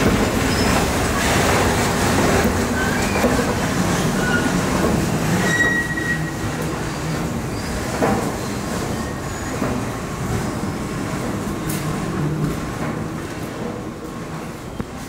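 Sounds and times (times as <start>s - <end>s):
metro train rumble: 0.0s - 15.0s
wheel squeals: 0.4s - 0.9s, 2.7s - 10.0s.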